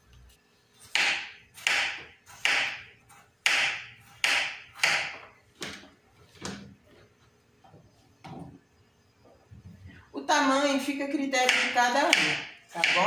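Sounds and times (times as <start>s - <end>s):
knife chopping on plastic board: 0.9s - 5.8s, 11.4s - 13.0s.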